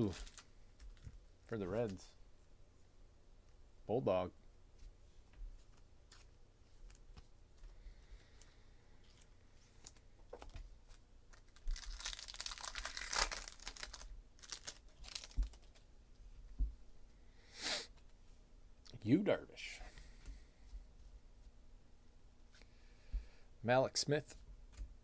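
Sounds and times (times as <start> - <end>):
foil wrapper tearing and crinkling: 11.3 - 15.8.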